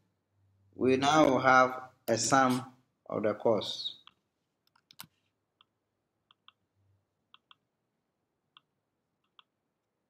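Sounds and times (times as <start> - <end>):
computer mouse clicks: 4.0 - 6.6, 7.3 - 7.7, 8.5 - 9.6.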